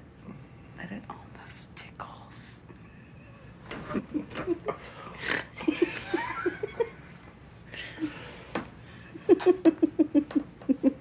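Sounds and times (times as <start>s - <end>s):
woman laughing: 5.6s - 7.0s, 9.2s - 11.0s.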